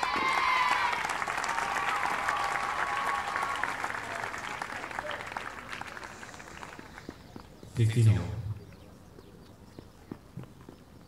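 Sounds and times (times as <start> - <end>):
spectators clapping: 0.0 - 7.5.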